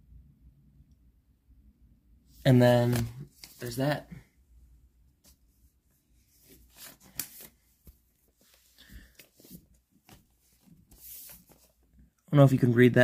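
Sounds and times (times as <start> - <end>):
paper sleeves rustling: 2.3 - 4.3, 5.2 - 12.1.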